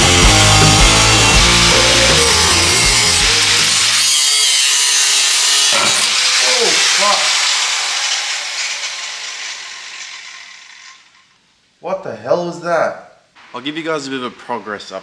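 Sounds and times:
angle grinder cutting sheet metal: 0.0s - 11.4s.

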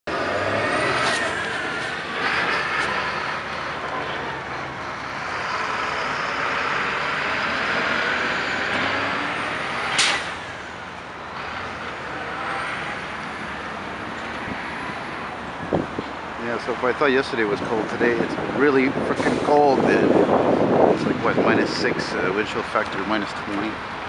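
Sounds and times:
street traffic: 0.0s - 24.0s
truck driving past: 0.1s - 16.9s.

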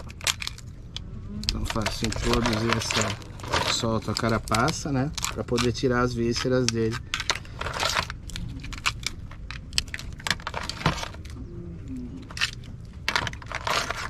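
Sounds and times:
crab shells cracking: 0.0s - 14.0s.

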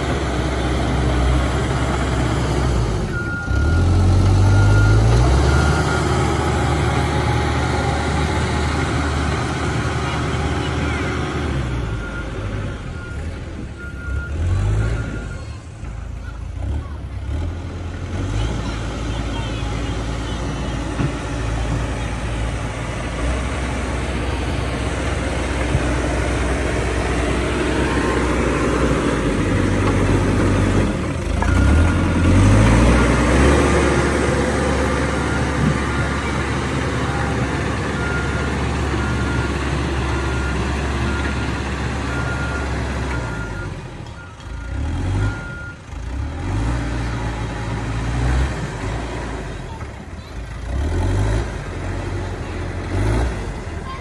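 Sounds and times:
diesel engine working: 0.0s - 54.0s
reversing alarm beeping: 3.1s - 16.6s, 33.9s - 45.8s.

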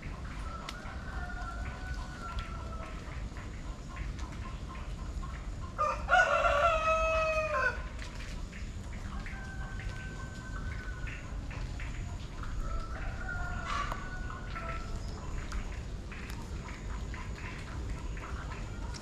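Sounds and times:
rooster crowing: 0.4s - 3.1s, 5.8s - 7.9s, 12.6s - 15.1s.

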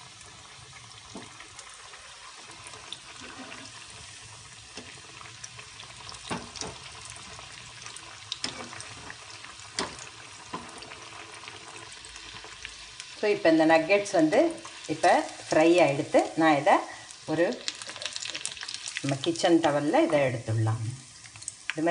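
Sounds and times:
deep-frying in hot oil: 0.0s - 21.9s.

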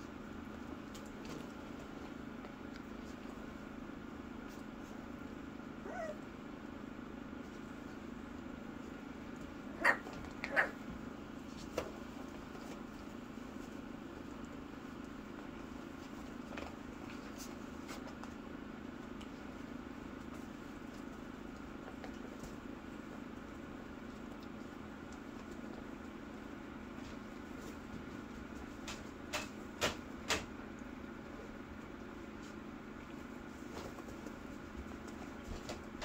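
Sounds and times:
steady low hum: 0.0s - 36.0s
puppy yips: 5.8s - 6.2s, 9.7s - 10.8s
puppy whimper: 5.8s - 6.3s.

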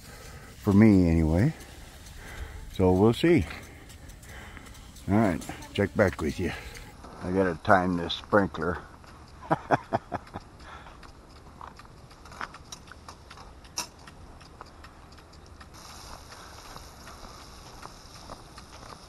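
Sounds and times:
steady hiss: 0.0s - 10.7s, 15.6s - 19.0s
footsteps on wet pavement: 0.0s - 19.0s.

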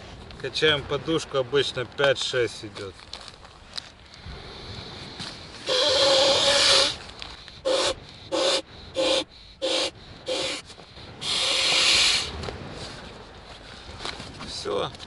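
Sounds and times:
person blowing into inflation valve: 5.6s - 7.0s, 7.6s - 12.3s.

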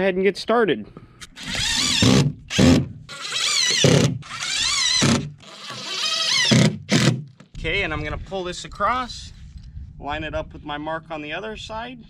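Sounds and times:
cordless drill driving screws: 1.2s - 7.2s.

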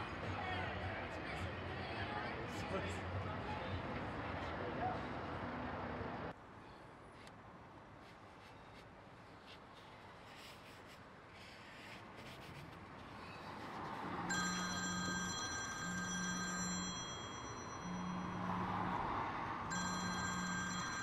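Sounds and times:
phone ringtone: 14.2s - 21.0s
phone vibration buzzing: 14.3s - 19.0s.

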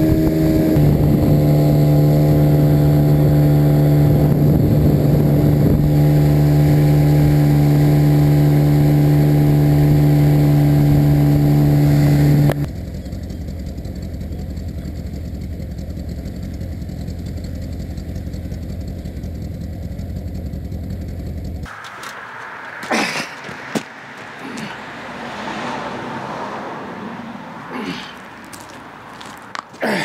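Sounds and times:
outboard motor running: 0.0s - 21.7s
dull low rumble: 0.0s - 25.3s.

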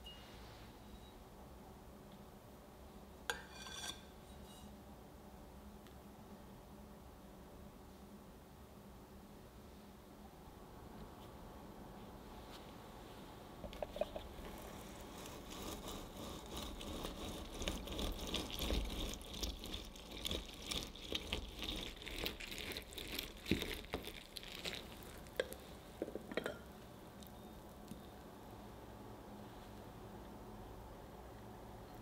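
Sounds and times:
wet squishing of fruit pulp: 15.2s - 25.7s
juice dripping: 15.2s - 28.0s.

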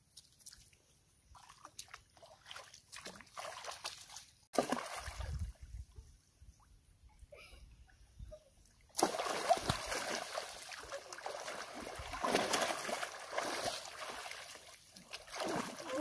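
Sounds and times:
people splashing in muddy water: 1.3s - 5.5s, 8.9s - 16.0s.

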